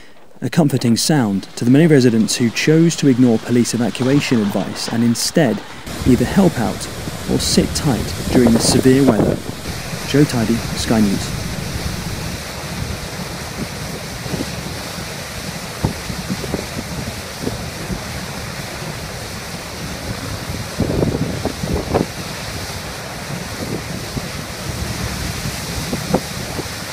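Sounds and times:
water jetting from pump pipes: 0.8s - 26.9s
wind bumps on microphone: 5.8s - 14.7s, 19.8s - 22.5s.

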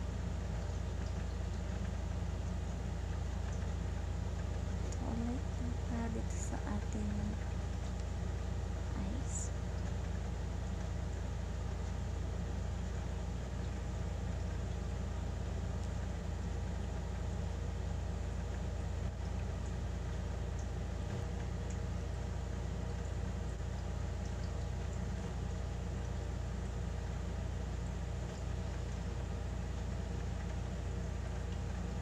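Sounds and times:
low mechanical hum: 0.0s - 32.0s.

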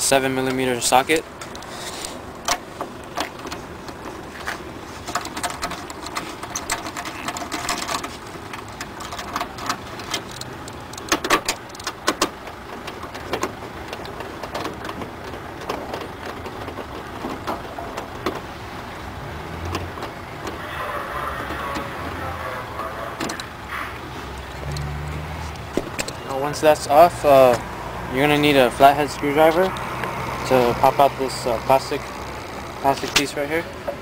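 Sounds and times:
steady background noise: 0.0s - 34.0s
nut driver clicks and scrapes: 1.4s - 12.4s.

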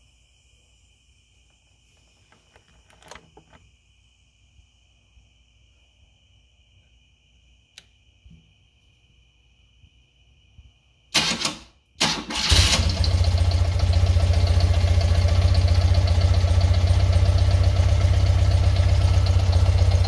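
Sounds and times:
handling knocks and clicks: 2.2s - 3.6s.

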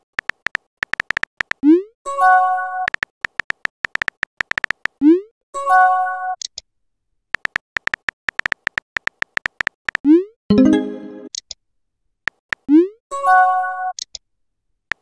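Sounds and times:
keyboard tap clicks: 0.2s - 1.6s, 2.9s - 5.0s, 7.4s - 10.0s
brief electronic chime: 10.5s - 11.3s.

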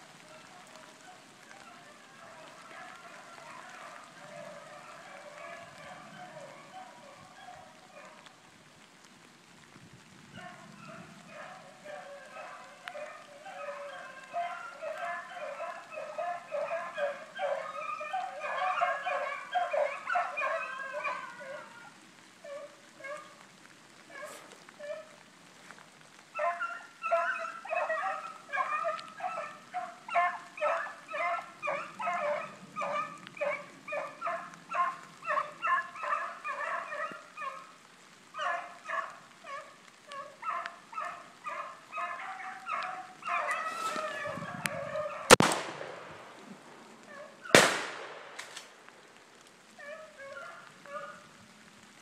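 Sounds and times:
hounds baying: 0.0s - 8.4s, 10.3s - 25.2s, 26.2s - 51.4s
loud gunshots: 45.3s - 46.3s, 47.6s - 48.6s.

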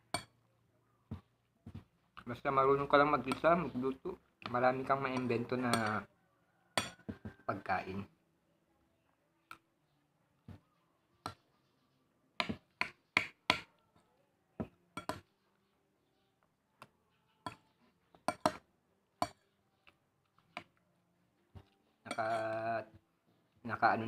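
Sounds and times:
metal spoon clinking on plate: 5.0s - 6.1s, 6.8s - 7.0s, 15.0s - 15.3s, 17.4s - 18.6s, 19.2s - 19.4s, 22.0s - 22.7s.

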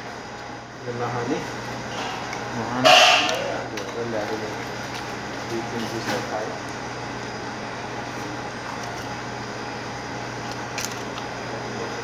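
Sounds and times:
appliance humming: 0.0s - 12.0s.

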